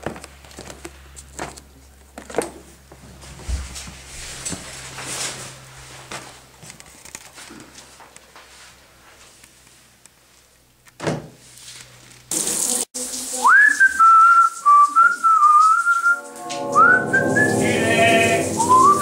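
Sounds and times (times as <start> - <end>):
person whistling a tune: 13.4 - 19.0
deep sustained drone: 16.0 - 19.0.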